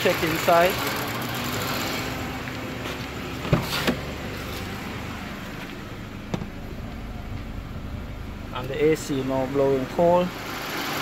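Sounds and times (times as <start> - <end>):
car engine idling: 0.0 - 11.0
car door clicking open: 6.2 - 6.6.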